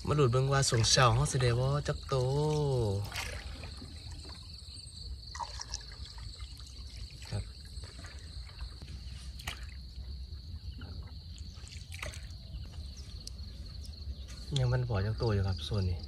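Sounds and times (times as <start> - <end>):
insects chirring: 0.0 - 16.0
water trickling: 0.0 - 16.0
short splashes or knocks: 2.2 - 10.0, 10.8 - 12.8.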